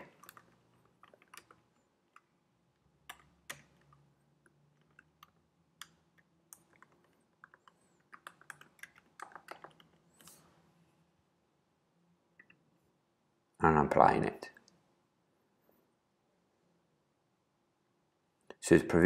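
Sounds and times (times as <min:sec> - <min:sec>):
typing on computer keyboard: 0:00.0 - 0:02.3, 0:03.0 - 0:10.0.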